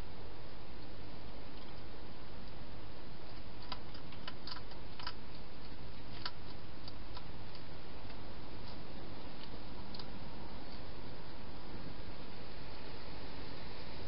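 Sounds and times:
steady hiss: 0:00.0 - 0:14.0
hedgehog chewing clicks: 0:03.2 - 0:08.8, 0:09.4 - 0:10.2.

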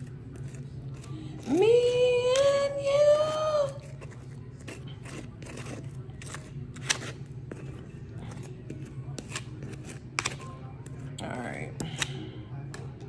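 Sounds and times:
knife scraping and clicking: 0:03.9 - 0:11.1.

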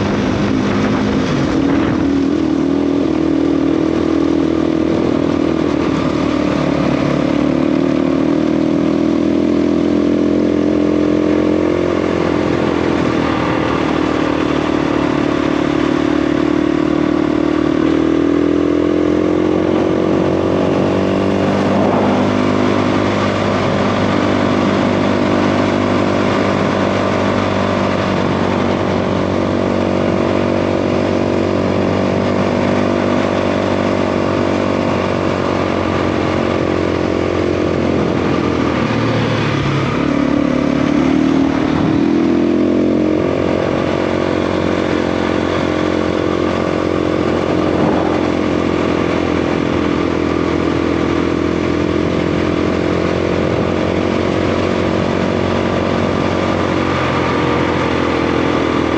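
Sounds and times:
dirt bike engine running: 0:00.0 - 0:58.9
wind and tyre noise: 0:00.0 - 0:58.9.

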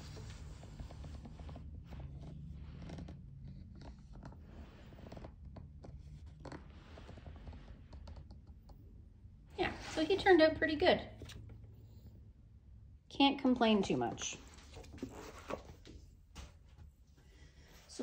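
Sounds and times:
paper pages rustling: 0:14.1 - 0:16.6.

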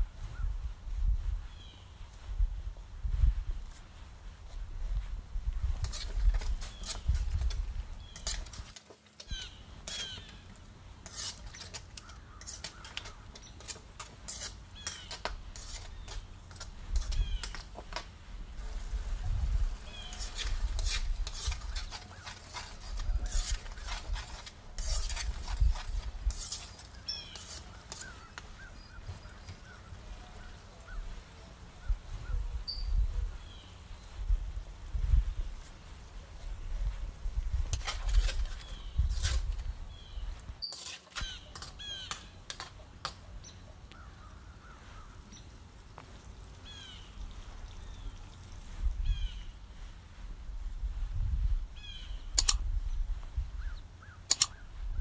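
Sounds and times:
spatula scraping wok: 0:05.8 - 0:18.0, 0:19.8 - 0:30.2, 0:37.7 - 0:42.8.

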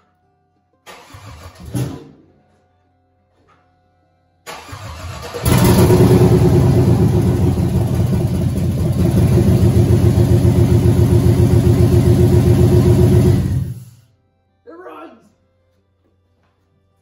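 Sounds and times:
engine cranking: 0:04.5 - 0:09.5
engine running rough: 0:05.2 - 0:14.0.

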